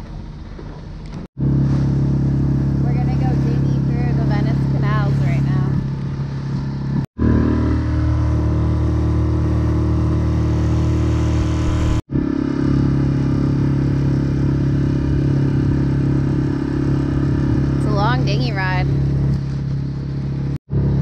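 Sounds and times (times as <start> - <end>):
outboard motor droning: 0.0 - 21.0.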